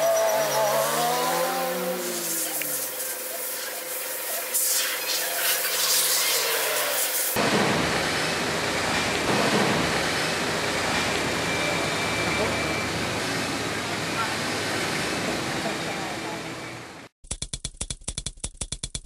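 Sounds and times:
vehicle engine changing pitch: 0.0s - 3.8s, 7.4s - 17.1s
street traffic: 0.0s - 17.2s
rushing noise: 5.0s - 17.1s.

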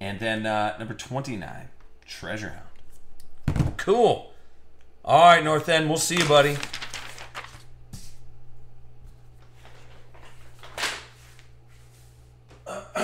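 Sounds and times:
low electrical hum: 0.0s - 13.0s
paper sheets sliding: 6.1s - 8.2s, 9.6s - 12.2s.

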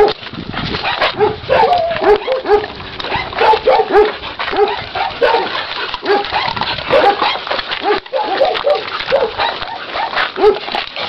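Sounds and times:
dogs yapping: 0.0s - 11.0s.

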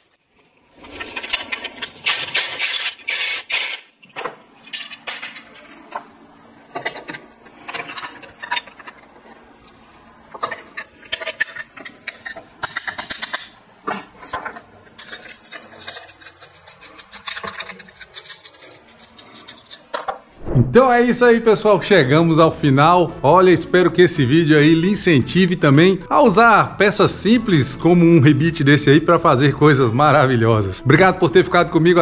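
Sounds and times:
metal tools clinking and rattling: 4.6s - 6.0s.

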